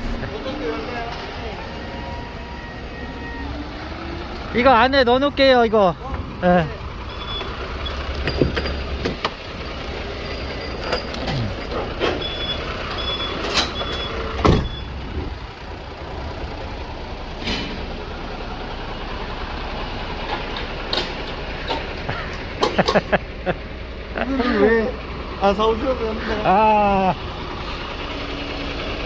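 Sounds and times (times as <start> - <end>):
diesel engine idling: 0.0 - 29.0
short high-pitched beeps: 7.1 - 8.0
knocks and clunks: 7.2 - 9.4, 10.8 - 15.3.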